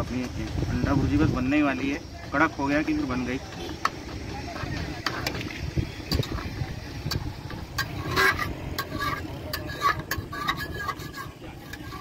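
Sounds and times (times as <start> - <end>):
metal spoon scraping a steel pot: 6.0 - 12.0.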